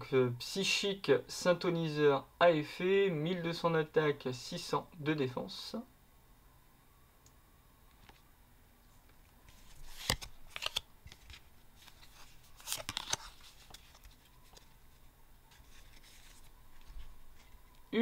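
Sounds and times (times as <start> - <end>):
trading cards rustling and clicking: 9.0 - 17.9.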